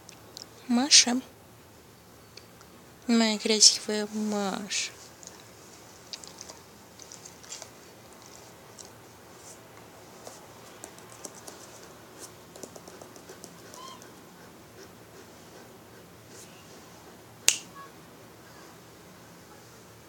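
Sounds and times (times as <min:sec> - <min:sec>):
fingers scratching dog fur: 0:06.2 - 0:17.2.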